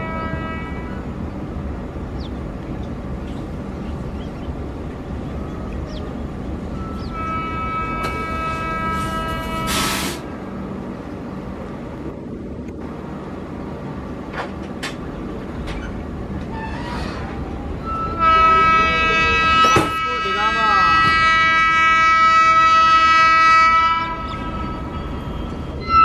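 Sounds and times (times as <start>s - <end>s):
locomotive horn blast: 0.0s - 1.2s, 6.6s - 10.3s, 17.8s - 26.0s
train running rumble: 0.0s - 26.0s.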